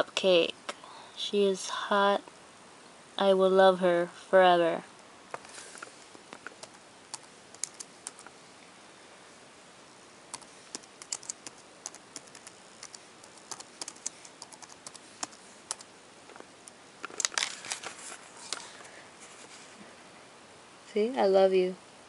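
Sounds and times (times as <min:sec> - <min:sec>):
laptop keyboard typing: 0:06.4 - 0:08.3, 0:10.3 - 0:15.9.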